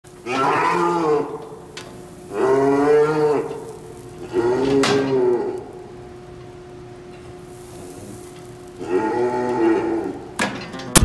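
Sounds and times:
cows mooing: 0.2s - 6.0s, 7.9s - 10.6s.

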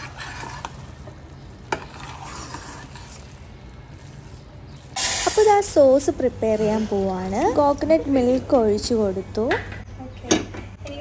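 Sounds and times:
spoon stirring sticky rice: 0.0s - 7.6s.

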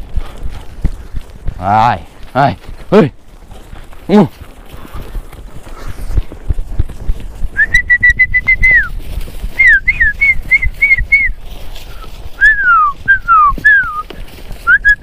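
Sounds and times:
person whistling sharp notes: 7.6s - 9.0s, 9.6s - 14.0s, 14.6s - 15.0s.

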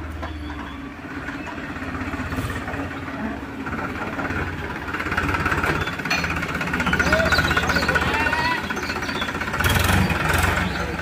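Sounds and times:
tractor diesel engine running: 0.0s - 11.0s.

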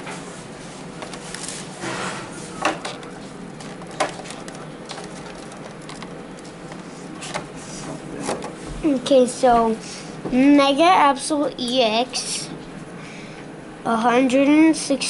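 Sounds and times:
plastic packaging rustling: 0.8s - 7.6s.

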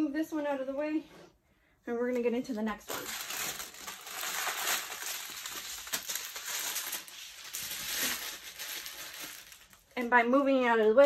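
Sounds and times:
plastic packets crinkling: 2.1s - 10.0s.

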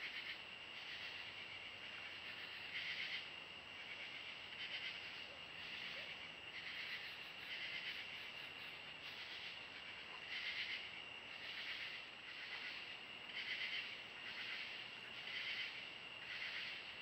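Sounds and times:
insects chirping: 0.0s - 17.0s.

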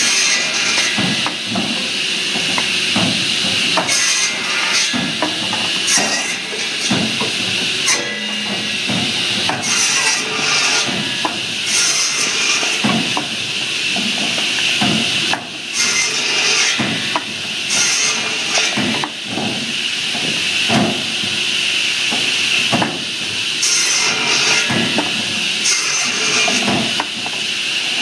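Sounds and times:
saw blade whining through wood: 0.0s - 1.4s, 9.6s - 12.8s, 25.7s - 26.7s.

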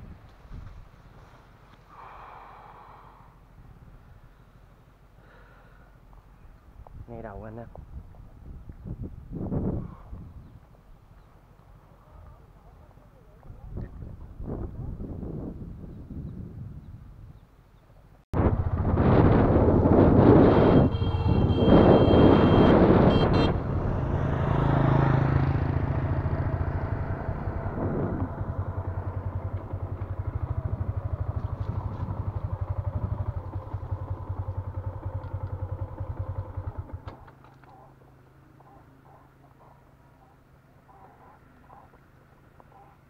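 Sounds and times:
wind rushing over microphone: 7.7s - 10.7s, 13.5s - 17.4s, 18.4s - 33.4s
motorbike engine running: 18.5s - 38.0s.

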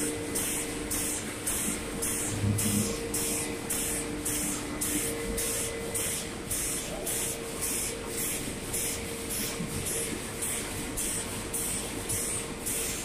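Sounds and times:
low steady hum: 2.0s - 5.6s.

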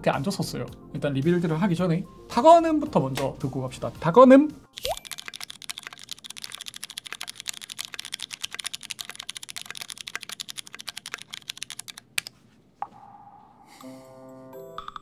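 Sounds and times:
mechanical keyboard typing: 4.8s - 12.3s.

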